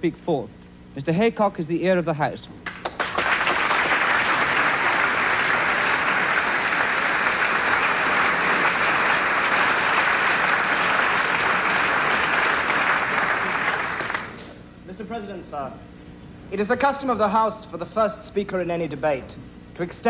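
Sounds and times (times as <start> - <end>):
audience clapping: 2.6 - 14.6.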